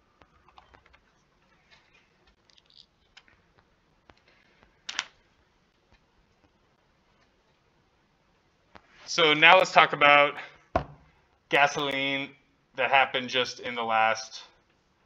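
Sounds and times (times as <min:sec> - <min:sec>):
keyboard and mouse clicks: 0:00.2 - 0:01.2.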